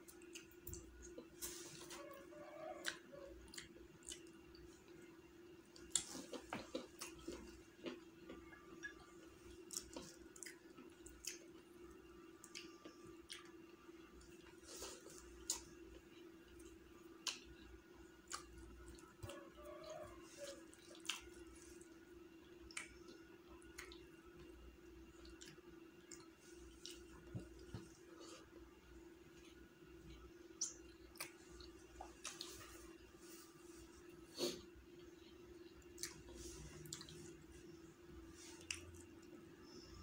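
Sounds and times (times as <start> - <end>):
faint steady hum: 0.0 - 40.0
man chewing food: 0.0 - 40.0.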